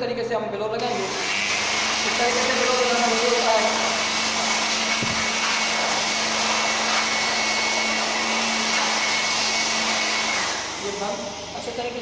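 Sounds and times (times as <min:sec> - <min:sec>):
electric air blower running: 0:00.8 - 0:12.0.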